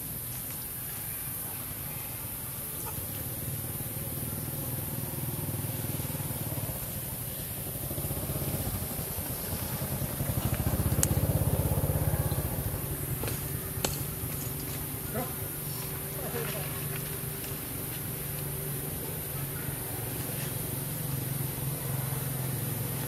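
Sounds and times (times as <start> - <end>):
vehicle engine pulsing: 3.7 - 16.4.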